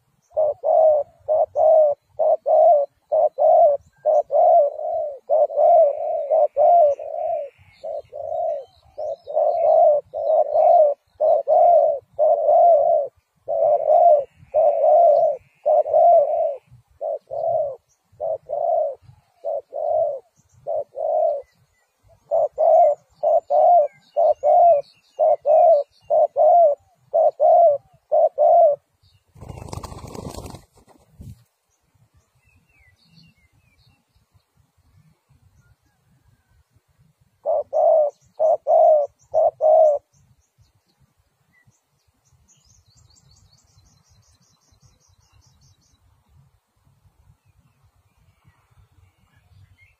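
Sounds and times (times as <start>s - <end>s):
dove cooing: 0.0s - 30.9s, 37.4s - 40.2s.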